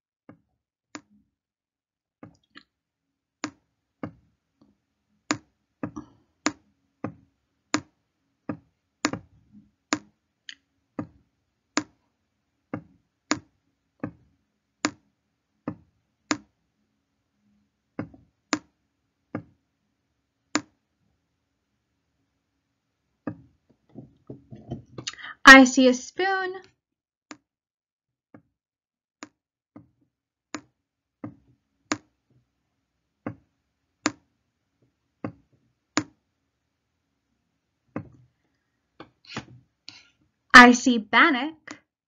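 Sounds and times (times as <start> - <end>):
stylus tapping on tablet screen: 3.4 - 4.3, 5.2 - 10.2, 10.9 - 11.2, 11.8 - 12.0, 12.7 - 14.2, 14.8 - 15.0, 15.6 - 16.5, 17.9 - 19.6, 20.5 - 20.8, 23.2 - 25.1, 30.6 - 32.2, 33.2 - 34.3, 35.2 - 36.2, 37.9 - 38.3.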